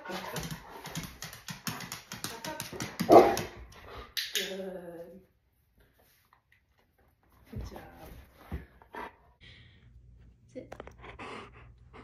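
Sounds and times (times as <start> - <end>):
dog's nails clicking on floor: 0.0 - 4.6.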